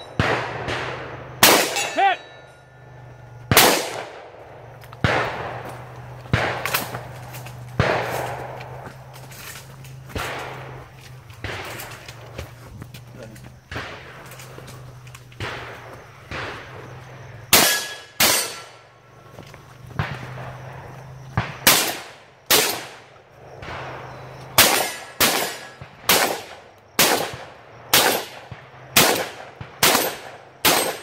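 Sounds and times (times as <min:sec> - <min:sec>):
shotgun shots: 0:00.0 - 0:02.4, 0:03.5 - 0:12.3, 0:13.6 - 0:18.8, 0:19.9 - 0:31.0
steel targets ringing: 0:01.4 - 0:03.8, 0:17.6 - 0:18.8.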